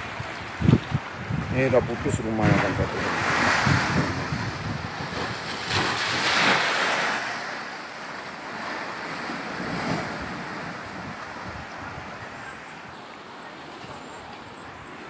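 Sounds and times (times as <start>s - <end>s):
wind buffeting microphone: 0.0s - 6.6s, 9.0s - 12.6s
storm waves splashing: 0.0s - 15.0s.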